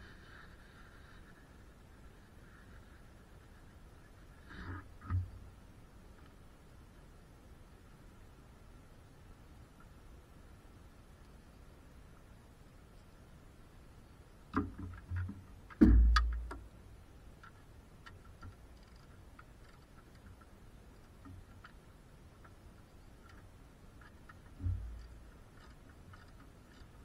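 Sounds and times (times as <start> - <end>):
faint ticks: 9.7 - 10.0, 11.2 - 12.3, 14.5 - 27.0
sharp knocks and clicks: 14.5 - 16.7
heavy thud: 15.8 - 16.5.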